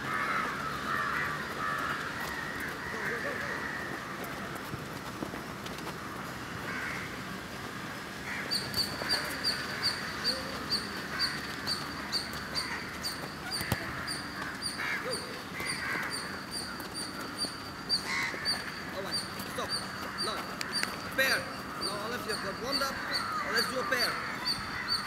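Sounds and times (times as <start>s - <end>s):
crows cawing: 0.0s - 4.9s, 5.8s - 25.0s
bird chirping high: 8.4s - 25.0s
football being kicked: 13.5s - 13.9s.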